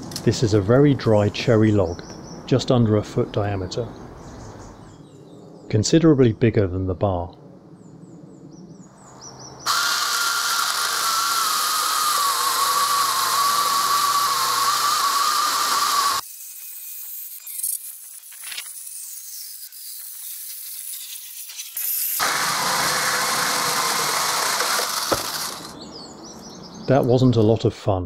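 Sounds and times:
electric chainsaw cutting log: 9.7s - 25.8s.

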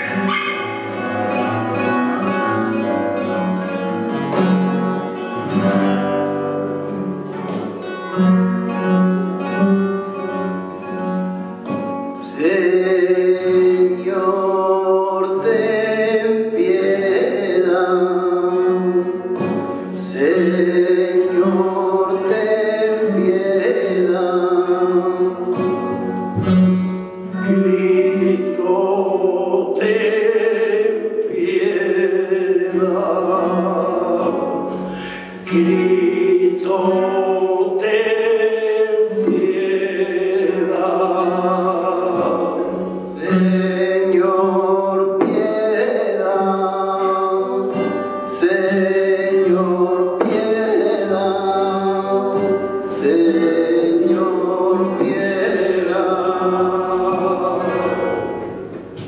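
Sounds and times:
guitar accompaniment: 0.0s - 59.0s
person singing flamenco: 0.0s - 59.0s.

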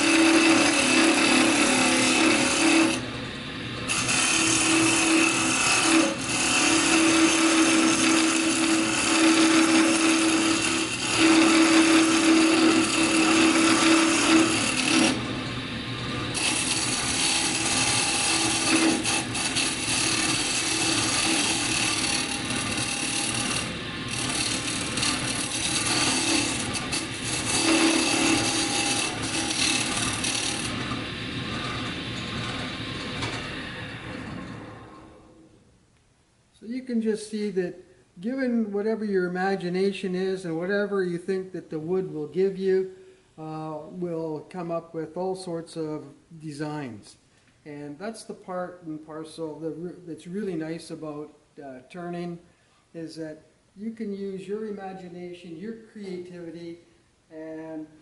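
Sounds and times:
scraper cutting wood on lathe: 0.0s - 3.0s, 3.9s - 15.3s, 16.3s - 31.0s
lathe motor hum: 0.0s - 34.3s.

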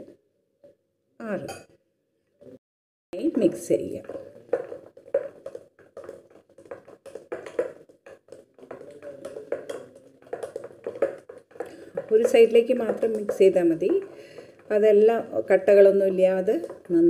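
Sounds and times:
spoon tapping bowl: 3.2s - 14.8s
spoon stirring batter: 3.2s - 17.0s.

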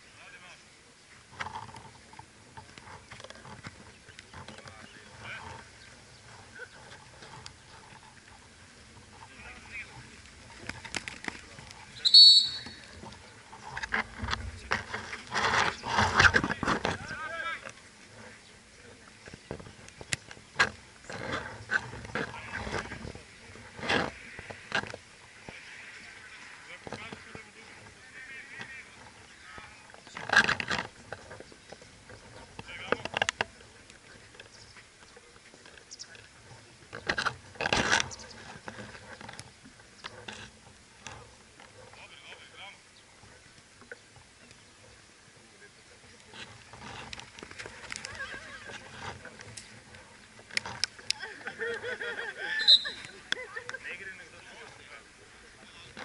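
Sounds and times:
referee's whistle blast: 12.0s - 12.8s, 52.6s - 53.0s.

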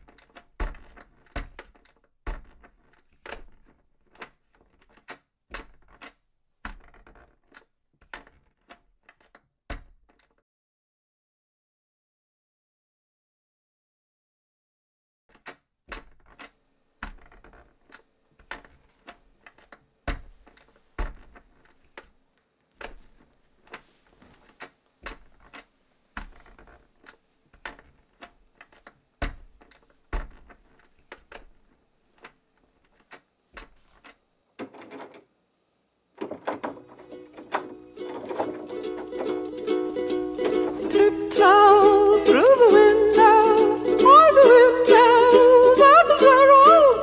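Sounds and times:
plucked ukulele music: 37.0s - 47.0s.

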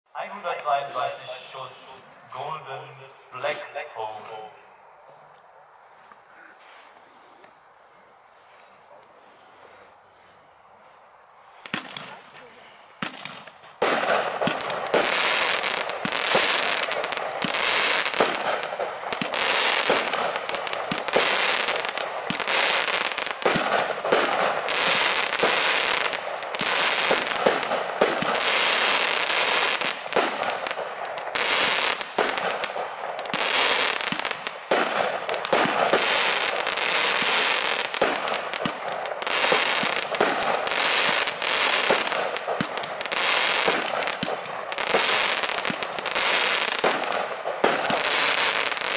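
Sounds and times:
firework cake crackling: 11.6s - 48.9s.

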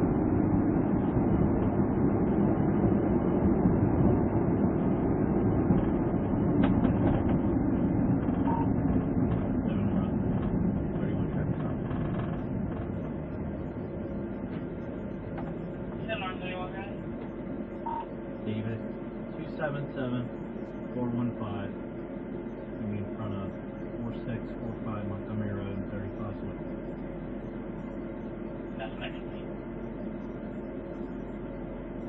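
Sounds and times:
car engine and road rumble: 0.0s - 32.0s.

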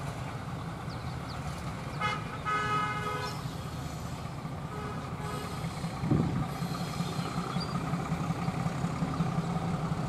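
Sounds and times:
locomotive engine rumble: 0.0s - 10.0s
diesel locomotive horn: 1.9s - 3.6s, 4.6s - 5.8s.

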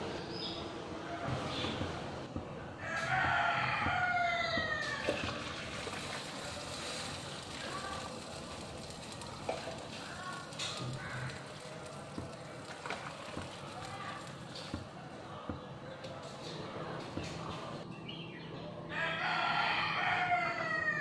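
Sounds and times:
water boiling in pots: 1.4s - 17.8s.

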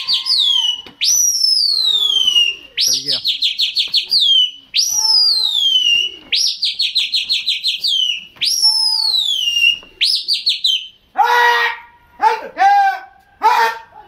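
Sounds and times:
loud high whistling: 0.0s - 11.0s.

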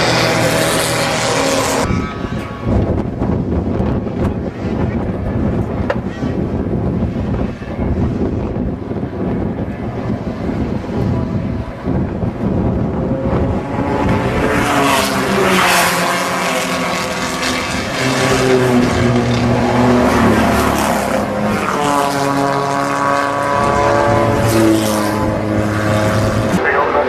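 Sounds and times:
racing car engines passing: 0.0s - 4.8s, 8.5s - 27.0s.

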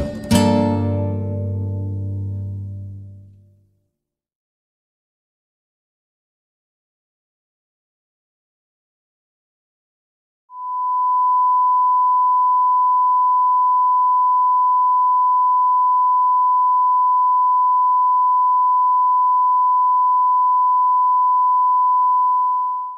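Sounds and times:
steady test tone beep: 10.5s - 22.9s.

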